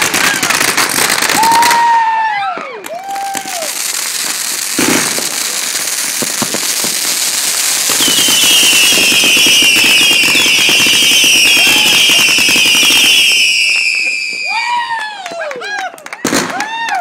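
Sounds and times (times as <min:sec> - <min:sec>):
fireworks crackling: 0:00.0 - 0:17.0
shrill falling firework whistles: 0:01.3 - 0:05.3, 0:06.8 - 0:15.2
firework bang: 0:02.6 - 0:13.5.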